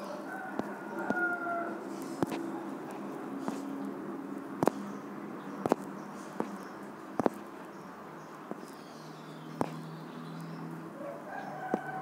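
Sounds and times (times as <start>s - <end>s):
fingertip taps on touchscreen: 7.2s - 7.4s.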